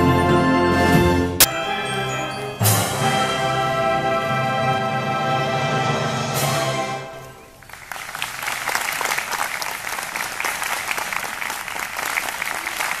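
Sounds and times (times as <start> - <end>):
audience applauding: 7.6 - 13.0.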